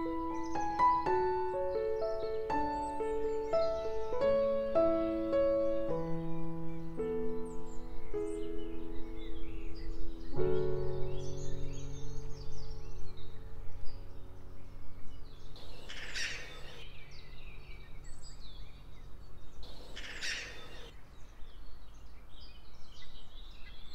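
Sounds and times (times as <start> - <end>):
harsh bird calls: 0.0 - 21.0
small birds chirping: 0.0 - 23.9.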